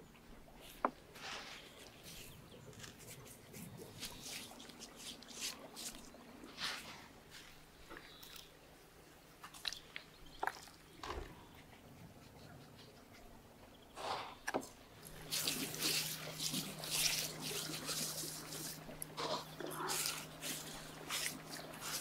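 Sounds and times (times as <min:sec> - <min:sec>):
salt rubbed into raw fish: 0:01.2 - 0:07.0, 0:15.2 - 0:18.8, 0:19.8 - 0:22.0.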